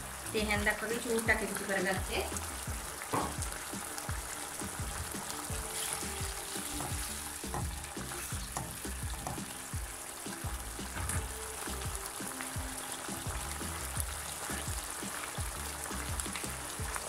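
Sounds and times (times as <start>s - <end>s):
sauce sizzling in frying pan: 0.0s - 17.0s
spoon stirring in pan: 3.3s - 10.0s.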